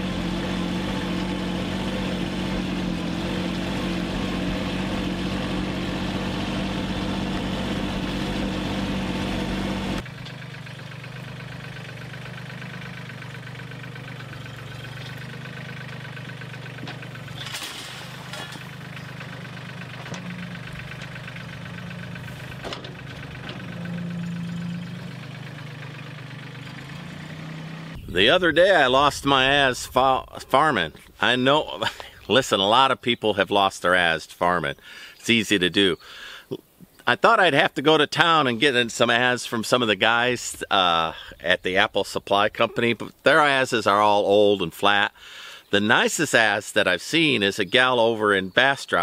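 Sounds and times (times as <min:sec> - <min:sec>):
tractor engine running: 0:00.0 - 0:32.9.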